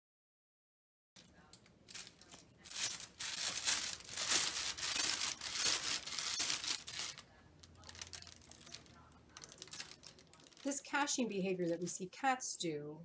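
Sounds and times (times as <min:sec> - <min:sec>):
cat scraping crinkling paper: 0:01.9 - 0:12.0.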